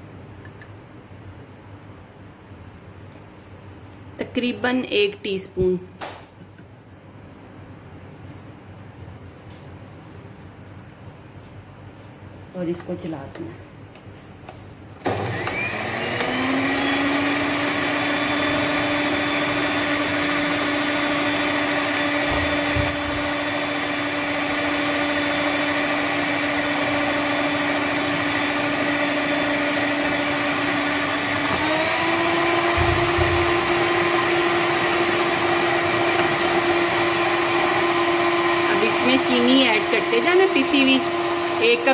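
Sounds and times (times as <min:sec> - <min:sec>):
electric mixer motor whine: 0:15.0 - 0:41.9
beaters whisking batter in bowl: 0:23.9 - 0:41.9.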